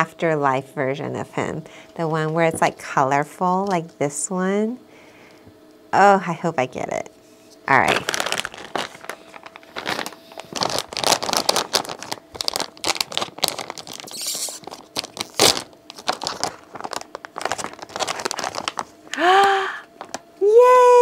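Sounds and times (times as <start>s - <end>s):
plastic bag tearing: 7.7s - 18.9s
plastic bag crinkling: 7.7s - 19.1s.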